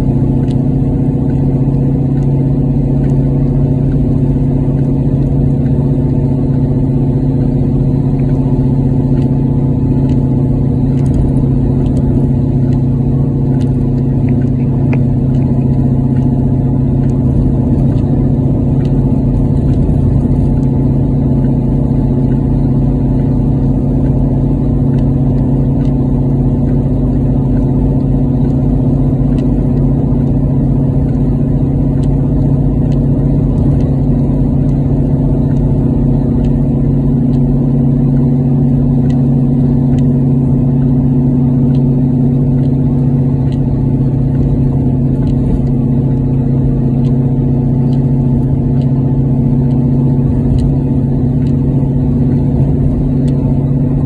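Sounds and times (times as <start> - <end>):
car engine and road noise drone: 0.0 - 54.0.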